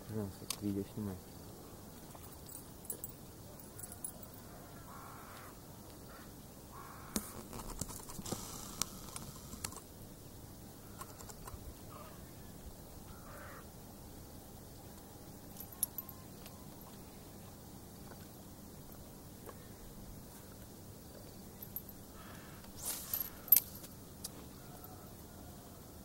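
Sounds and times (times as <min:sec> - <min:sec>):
faint crows cawing: 0:03.7 - 0:07.2, 0:11.9 - 0:13.7, 0:22.1 - 0:23.6
sharp clicks: 0:11.0 - 0:11.6.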